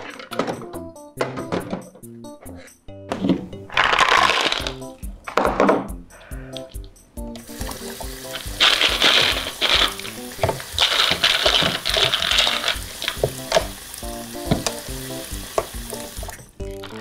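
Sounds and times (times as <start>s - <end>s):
simple background tune: 0.0s - 17.0s
water splashing from faucet: 7.4s - 17.0s.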